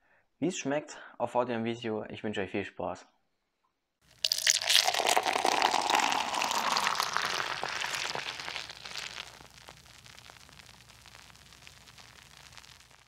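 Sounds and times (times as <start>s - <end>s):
beer fizzing in a glass: 4.1s - 13.0s.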